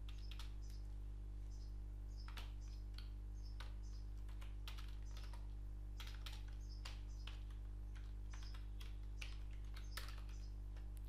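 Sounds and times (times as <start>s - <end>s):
steady low hum: 0.0s - 11.0s
keyboard keystroke clicks: 6.0s - 11.0s.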